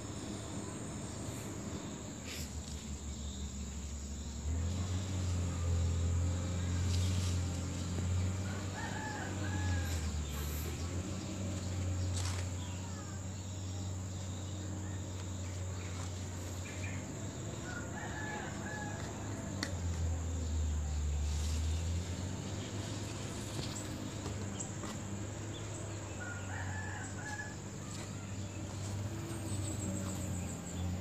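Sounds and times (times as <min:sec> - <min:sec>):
rooster crowing: 0:08.4 - 0:10.3, 0:17.6 - 0:19.6, 0:26.1 - 0:28.0.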